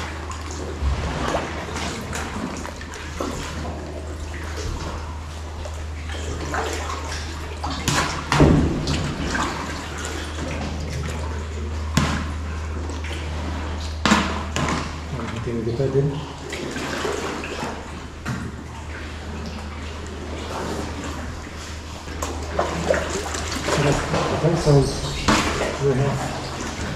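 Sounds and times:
paddle strokes splashing: 0.0s - 15.4s, 16.2s - 26.9s
water lapping against rock: 0.0s - 26.9s
steady low rumble: 0.5s - 3.0s.

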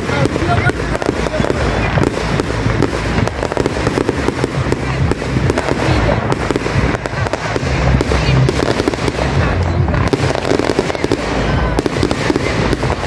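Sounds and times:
fireworks bangs and crackle: 0.0s - 13.0s.

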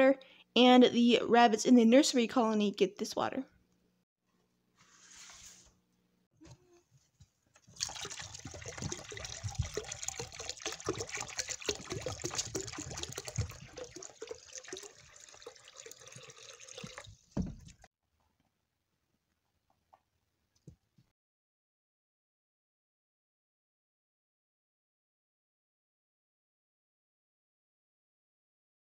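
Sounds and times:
water pouring and splashing: 7.6s - 17.9s
thump: 17.4s - 17.8s.

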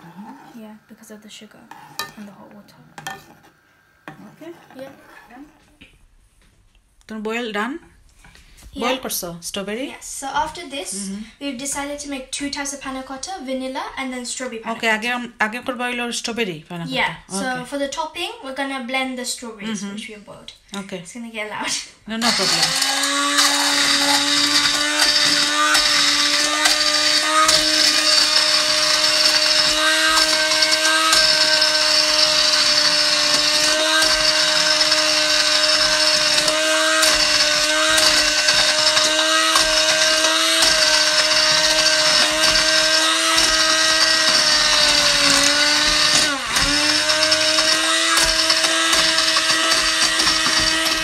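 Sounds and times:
stick blender motor whine: 22.2s - 51.0s.

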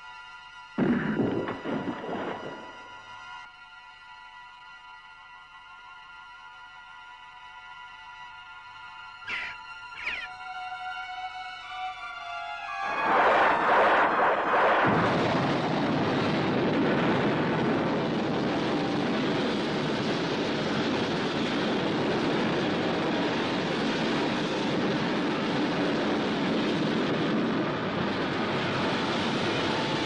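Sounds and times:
explosion fireball roar: 0.8s - 2.8s, 13.0s - 21.2s.

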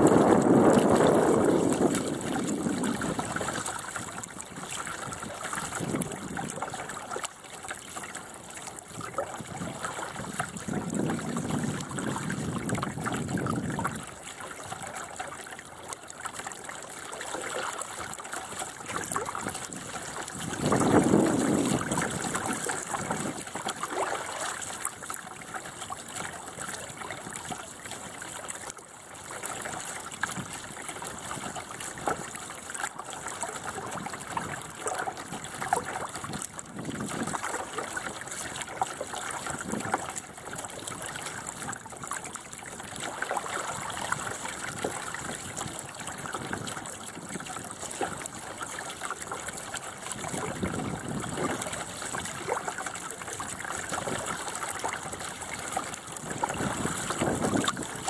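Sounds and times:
water splash: 0.0s - 15.5s, 16.3s - 28.8s
water gurgling along hull: 0.0s - 58.0s.

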